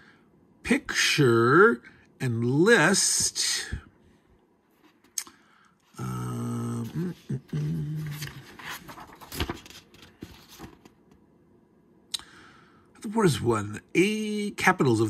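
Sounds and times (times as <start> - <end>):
man humming: 5.9 - 8.8
paper rustling: 6.7 - 11.2
pages snapping as turned: 8.0 - 11.2.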